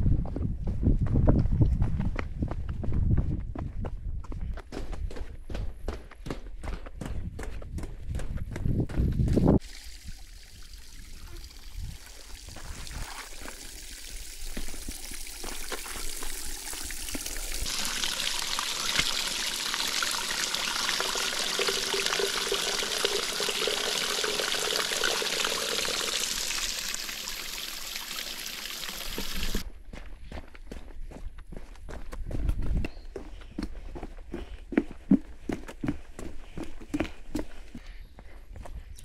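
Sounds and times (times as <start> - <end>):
faint footsteps on track: 0.0 - 9.6, 29.2 - 39.0
running water rushing: 9.6 - 29.6.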